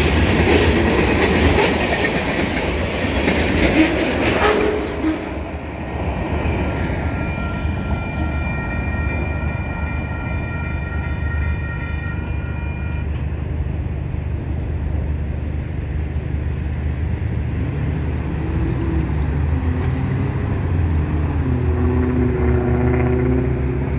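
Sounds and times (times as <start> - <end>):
railroad crossing bell ringing: 6.6 - 13.8
low rumble of road traffic: 10.0 - 23.9.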